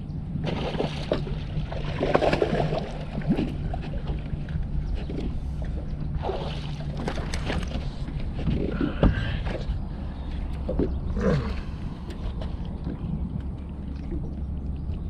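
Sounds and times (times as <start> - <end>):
steady low rumble: 0.0 - 15.0
fish splashing in water: 0.4 - 4.4, 6.2 - 8.0.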